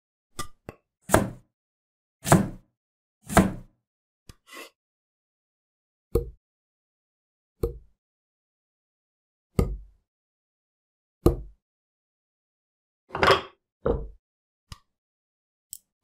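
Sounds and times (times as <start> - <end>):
wood thudding on a table: 13.1 - 14.2.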